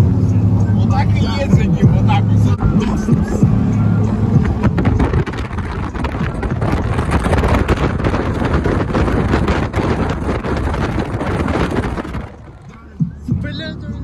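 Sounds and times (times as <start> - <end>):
car engine and road noise: 0.0 - 14.0
wind buffeting microphone: 3.0 - 13.4.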